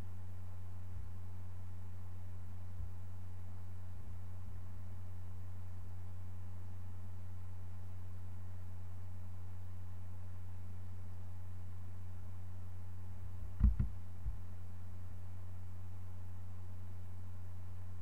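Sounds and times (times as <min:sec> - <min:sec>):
low electrical hum: 0:00.0 - 0:18.0
short thumps: 0:13.6 - 0:14.4.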